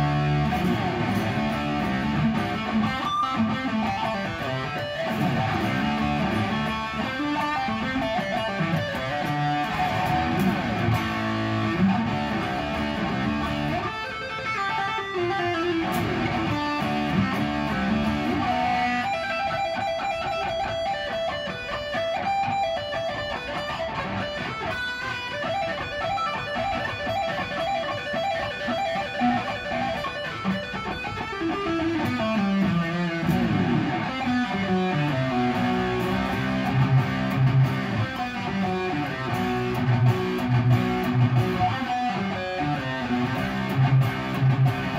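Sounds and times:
electric guitar solo: 0.0 - 44.9.

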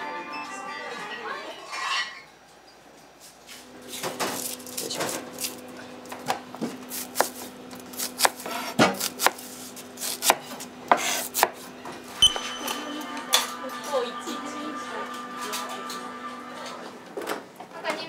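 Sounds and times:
knife chopping on cutting board: 6.6 - 11.6.

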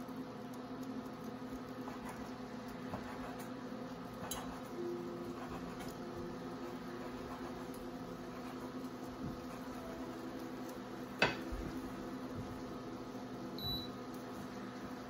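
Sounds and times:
steady hum: 0.0 - 15.0
short electronic beep: 13.6 - 13.9.

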